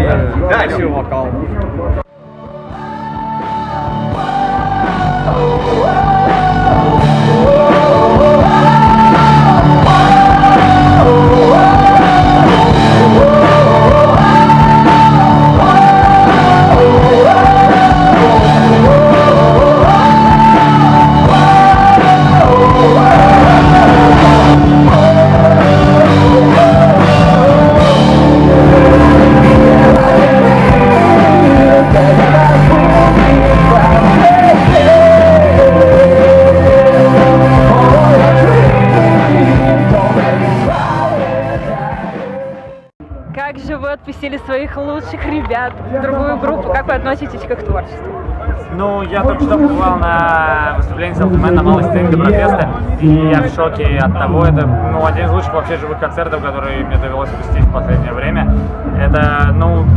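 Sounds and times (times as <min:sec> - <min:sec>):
electric guitar: 0:02.4 - 0:42.7
rock band playing live: 0:02.5 - 0:42.9, 0:53.9 - 0:59.9
man singing loudly: 0:03.8 - 0:42.9.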